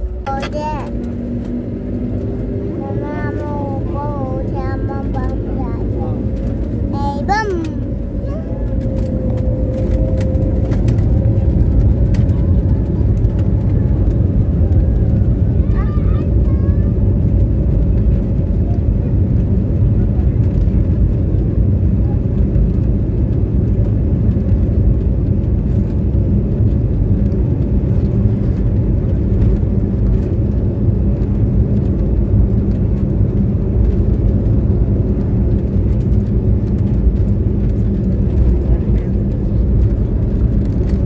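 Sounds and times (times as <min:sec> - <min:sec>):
jet airliner takeoff rumble: 0:00.0 - 0:41.0.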